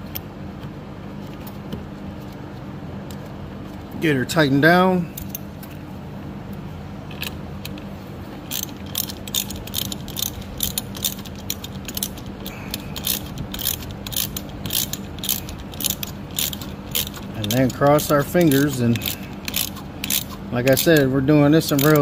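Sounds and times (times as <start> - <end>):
steady low hum: 0.0 - 22.0
ratchet wrench clicking: 8.5 - 22.0.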